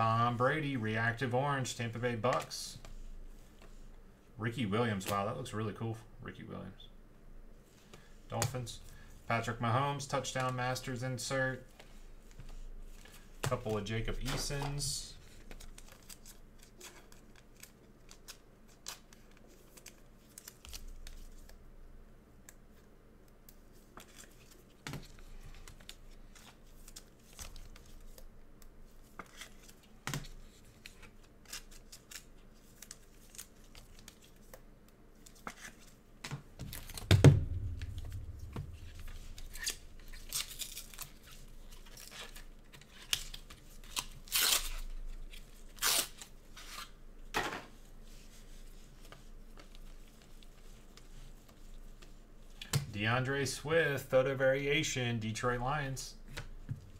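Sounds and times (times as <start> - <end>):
loud knock: 37.0 - 39.3
wrappers tearing and crinkling: 38.9 - 46.9.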